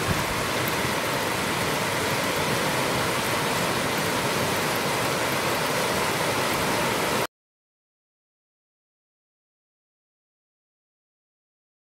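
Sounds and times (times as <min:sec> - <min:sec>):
heavy rain pouring: 0:00.0 - 0:07.3.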